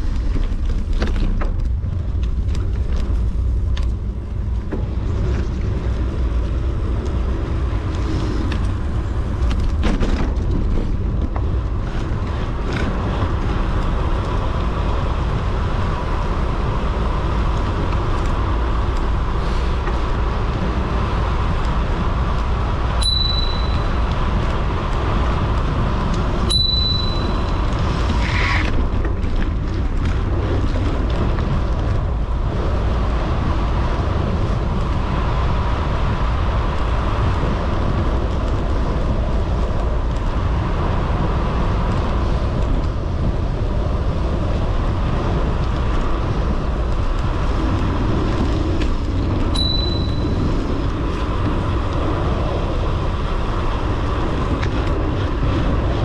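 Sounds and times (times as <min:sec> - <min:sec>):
tyre and road noise: 0:00.0 - 0:56.0
wind buffeting microphone: 0:00.0 - 0:56.0
short high beeps: 0:23.0 - 0:23.8, 0:26.5 - 0:27.4, 0:49.6 - 0:50.2.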